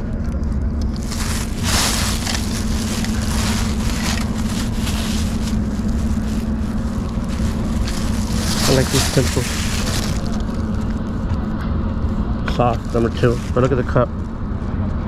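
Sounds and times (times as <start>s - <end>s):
steady low hum: 0.0s - 15.0s
plastic bag crinkling: 0.8s - 11.0s, 12.8s - 13.7s.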